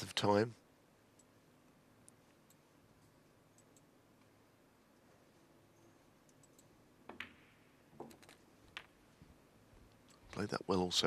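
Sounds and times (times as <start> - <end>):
quiet hall hush: 0.6 - 10.6
snooker balls clicking: 7.0 - 9.1.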